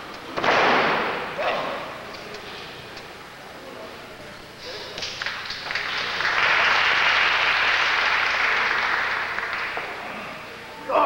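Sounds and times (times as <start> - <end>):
crowd applauding: 5.0 - 10.3.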